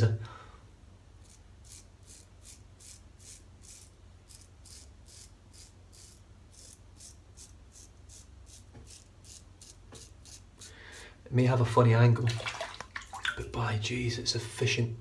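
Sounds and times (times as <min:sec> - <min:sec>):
razor scraping stubble: 0:01.2 - 0:10.7.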